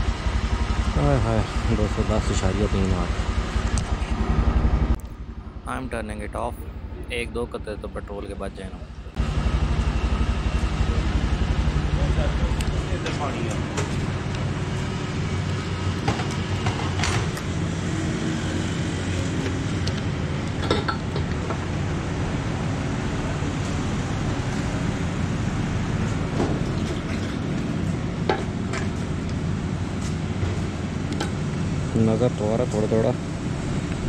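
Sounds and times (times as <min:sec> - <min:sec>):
engines idling: 0:00.0 - 0:34.0.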